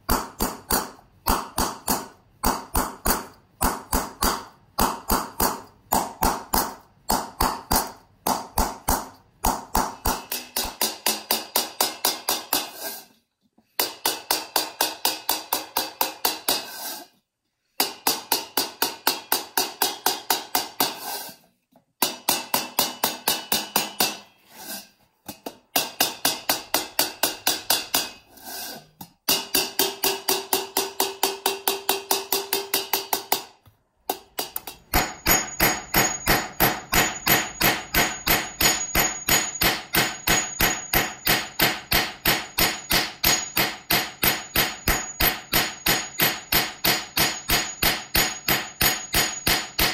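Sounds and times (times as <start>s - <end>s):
ringing hammer blows on copper: 34.9s - 49.9s.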